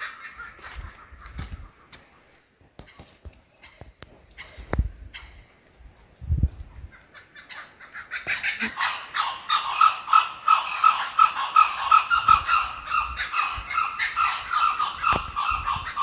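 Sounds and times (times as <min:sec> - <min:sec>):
kookaburra laughing call: 0:06.9 - 0:16.0.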